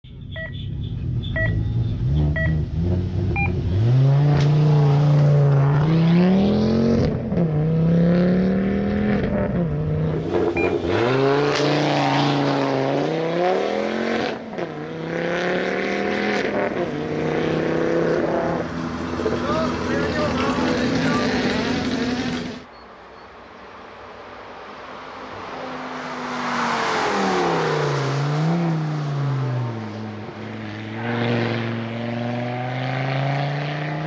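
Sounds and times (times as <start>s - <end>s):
car engine accelerating: 0.2s - 22.7s, 25.4s - 34.0s
short electronic beeps: 0.3s - 0.7s, 1.3s - 1.7s, 2.3s - 2.6s, 3.4s - 3.6s, 10.6s - 10.8s, 22.7s - 23.4s.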